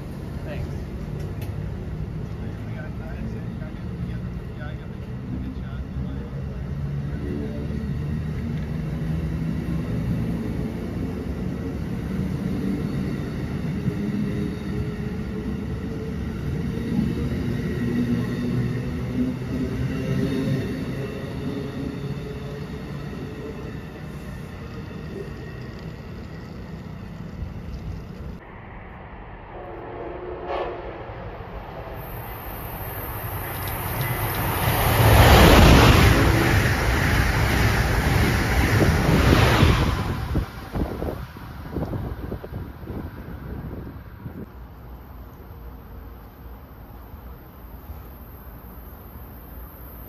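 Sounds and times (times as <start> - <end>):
train wheels rumbling on rail: 0.0 - 28.4, 29.6 - 49.1
distant train horn: 29.4 - 32.2.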